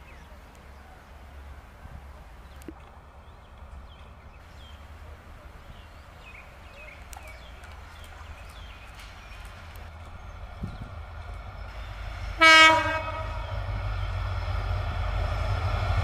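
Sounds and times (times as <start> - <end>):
distant diesel locomotives rumbling: 0.0 - 16.0
small birds chirping: 2.4 - 12.2.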